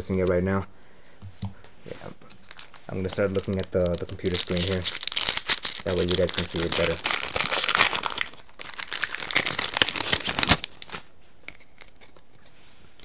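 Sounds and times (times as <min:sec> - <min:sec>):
foil wrapper crinkling and tearing: 0:02.4 - 0:11.1
cards being handled: 0:09.9 - 0:12.6.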